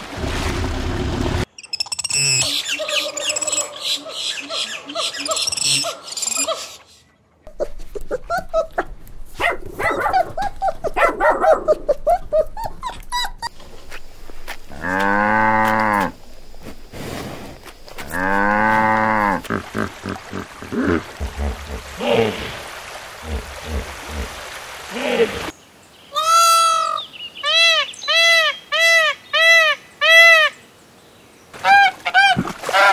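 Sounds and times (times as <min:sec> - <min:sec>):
monkeys chirping: 0:01.6 - 0:08.8
puppies squeaking and whimpering: 0:11.8 - 0:13.6
cow mooing: 0:14.7 - 0:16.2, 0:18.1 - 0:19.4.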